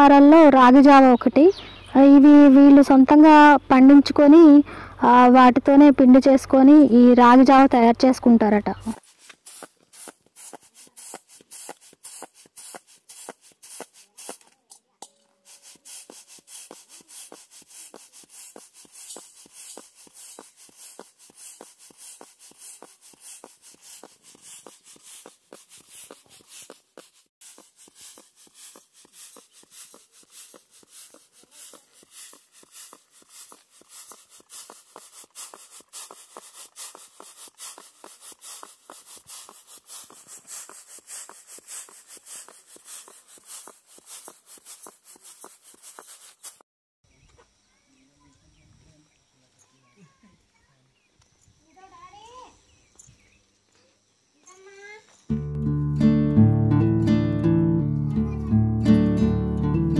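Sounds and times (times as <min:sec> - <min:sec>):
grain rustling on winnowing tray: 0:09.0 - 0:14.7, 0:15.3 - 0:46.6.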